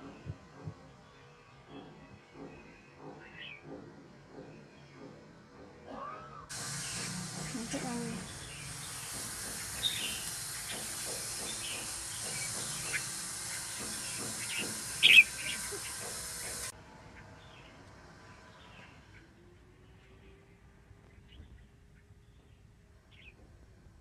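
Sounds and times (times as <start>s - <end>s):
bulbuls calling: 6.5s - 16.7s
steady hiss: 6.5s - 16.8s.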